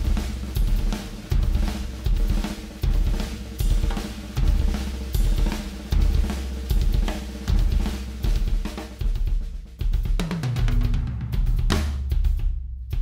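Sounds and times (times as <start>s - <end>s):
heavy bass drum hits: 0.0s - 9.2s
drum kit groove: 0.0s - 13.0s.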